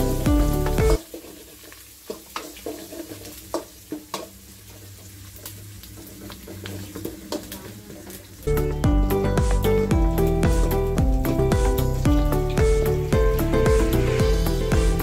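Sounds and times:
background music: 0.0s - 1.0s, 8.5s - 15.0s
onions sizzling in oil: 0.0s - 15.0s
ladle scraping metal pan: 13.1s - 15.0s.

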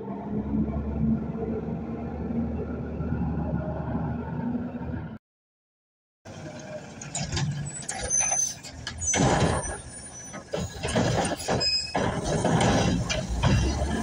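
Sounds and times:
garbage truck engine: 6.3s - 14.0s.

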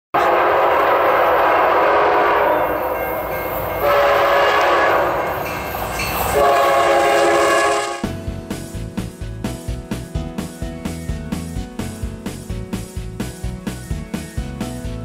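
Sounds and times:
locomotive air horn: 0.1s - 5.5s, 6.3s - 8.1s.

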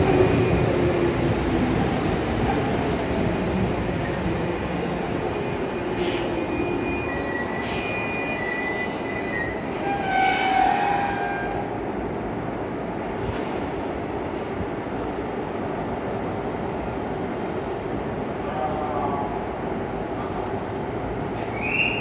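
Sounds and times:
steady train hum: 0.0s - 22.0s
train pulling into station: 0.0s - 22.0s
wheels and brakes squealing: 5.2s - 11.6s.

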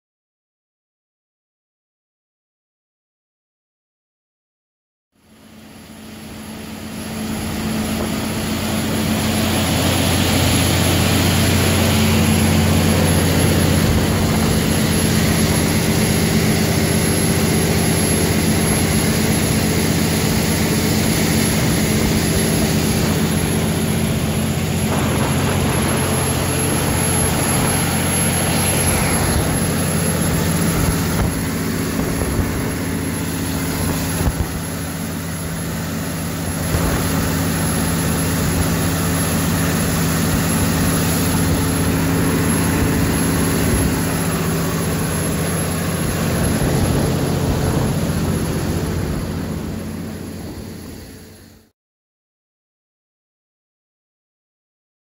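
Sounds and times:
diesel generator engine running: 5.2s - 51.7s
faint high whine: 5.3s - 51.7s.

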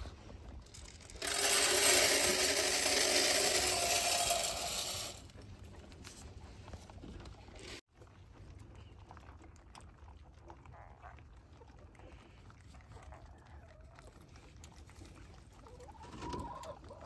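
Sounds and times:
pellets rattling into metal feeder: 0.7s - 5.2s.

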